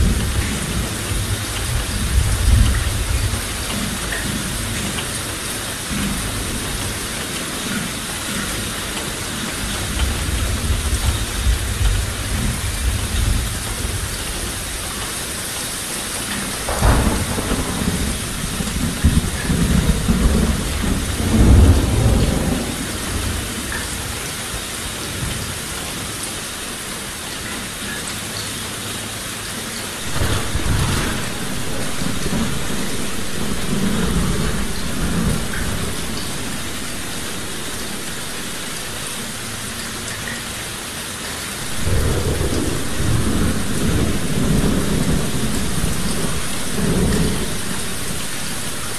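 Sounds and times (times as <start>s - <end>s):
low thunder rumbles: 0.0s - 5.0s, 9.6s - 15.1s, 16.2s - 23.8s, 30.0s - 40.4s, 41.6s - 48.9s
heavy rain hissing: 0.0s - 48.9s.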